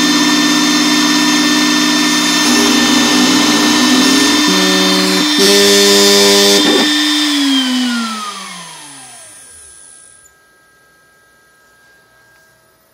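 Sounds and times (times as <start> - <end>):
spindle whine spinning down: 2.2 - 12.9.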